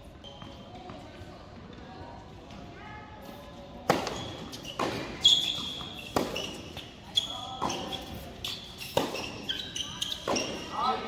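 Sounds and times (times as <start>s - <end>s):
shoes squeaking on court: 0.0s - 1.3s, 3.2s - 11.0s
racket hitting tennis ball: 3.8s - 6.9s, 7.6s - 10.7s
tennis ball bouncing: 3.8s - 6.9s, 8.8s - 10.6s.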